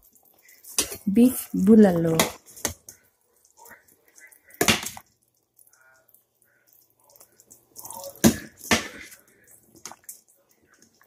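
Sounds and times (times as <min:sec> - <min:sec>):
metal ladle stirring in pot: 0:00.0 - 0:01.1.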